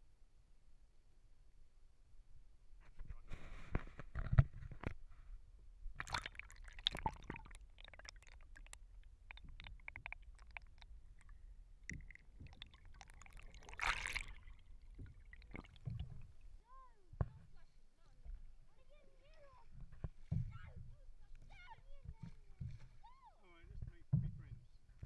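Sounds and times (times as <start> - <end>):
water sloshing and gurgling: 5.9 - 16.6
water splash: 6.0 - 16.6.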